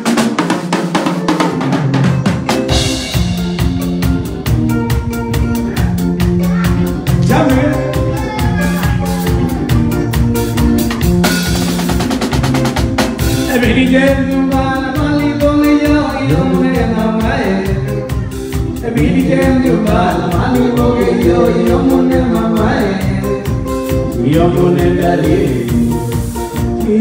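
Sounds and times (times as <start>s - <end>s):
drum fill: 0.0s - 27.0s
live band music: 0.0s - 27.0s
person singing: 4.9s - 11.4s, 13.2s - 27.0s.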